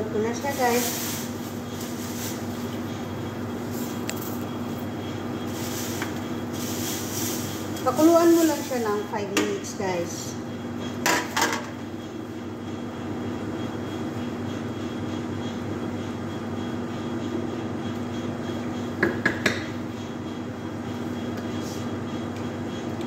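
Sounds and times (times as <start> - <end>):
pasta stirred in boiling water: 5.4 - 8.9.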